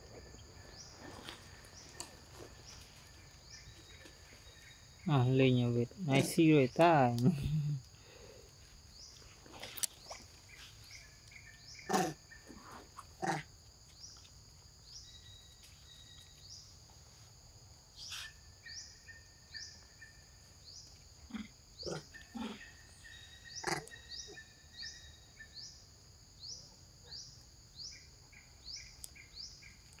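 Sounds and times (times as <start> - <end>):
insects buzzing and chirping: 0.0 - 30.0
macaque calls: 21.3 - 22.8.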